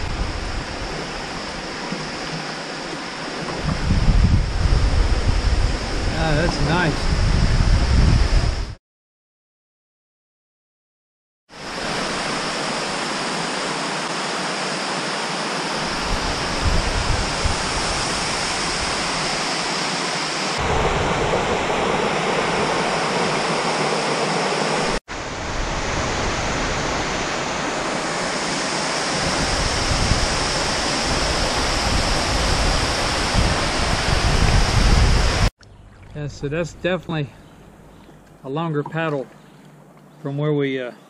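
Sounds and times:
waterfall rushing: 0:11.6 - 0:35.5.

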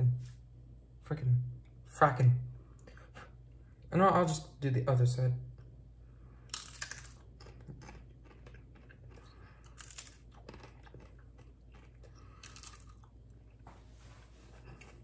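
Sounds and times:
faint low hum: 0:00.0 - 0:15.0
chewing crisp chips: 0:06.4 - 0:13.6.

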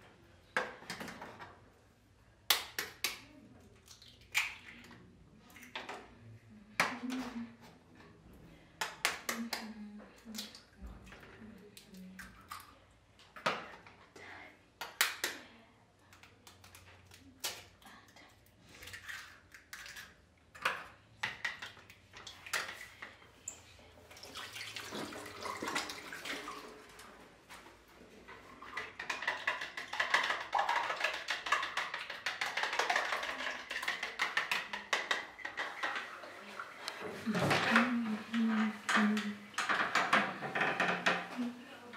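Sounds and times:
eggs beaten in a bowl: 0:28.6 - 0:36.3.

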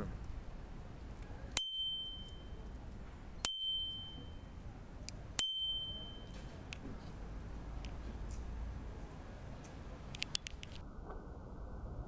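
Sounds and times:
bicycle bell ringing: 0:01.6 - 0:02.6, 0:03.4 - 0:04.5, 0:05.4 - 0:06.4.

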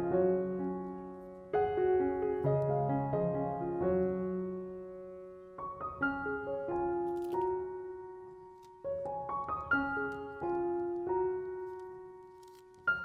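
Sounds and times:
soft solo piano: 0:00.0 - 0:13.0.

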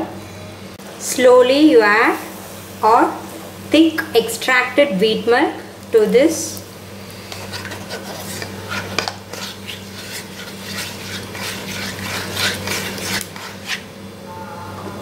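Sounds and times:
utensil scraping cookware: 0:07.2 - 0:13.9.

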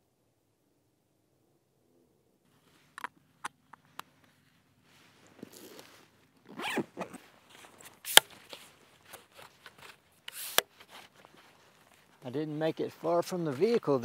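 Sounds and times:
gear handling: 0:03.7 - 0:14.0
backpack zipper pulled: 0:05.3 - 0:11.4
sharp click: 0:08.1 - 0:08.3.

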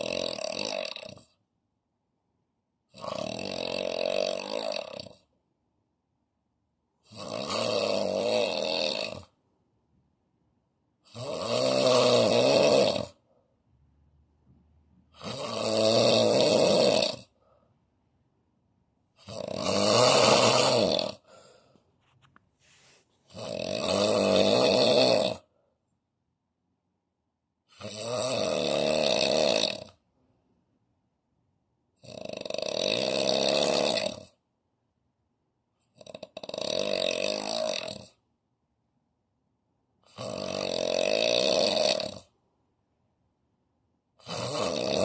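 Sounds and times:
man snoring heavily: 0:00.0 - 0:01.3, 0:02.9 - 0:05.3, 0:07.0 - 0:09.4, 0:11.0 - 0:13.3, 0:15.1 - 0:17.4, 0:19.1 - 0:21.7, 0:23.3 - 0:25.5, 0:27.7 - 0:30.0, 0:32.0 - 0:34.4, 0:35.9 - 0:38.2, 0:40.0 - 0:42.4, 0:44.2 - 0:45.0.

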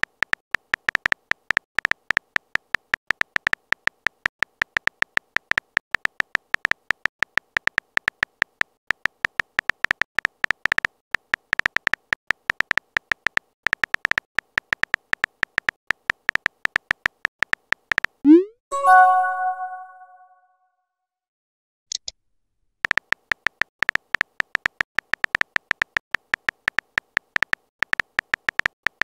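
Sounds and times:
keyboard typing clicks: 0:00.0 - 0:20.2, 0:22.9 - 0:29.0
bright chime: 0:18.7 - 0:20.4.

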